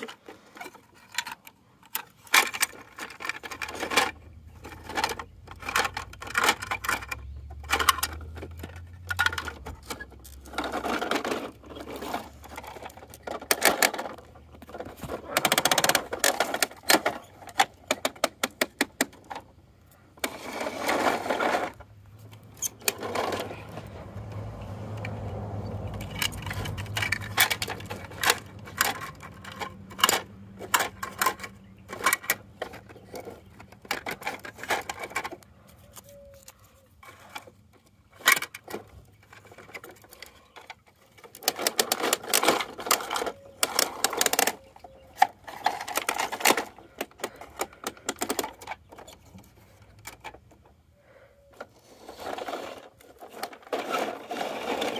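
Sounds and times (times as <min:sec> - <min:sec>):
plastic toy parts clicking: 0:00.0 - 0:19.5, 0:25.9 - 0:50.7.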